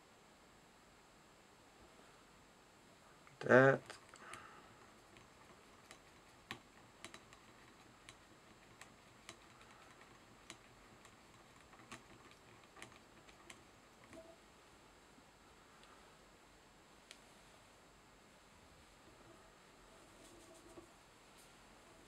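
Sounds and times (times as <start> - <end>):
faint irregular clicks: 3.2 - 14.4, 15.8 - 16.0.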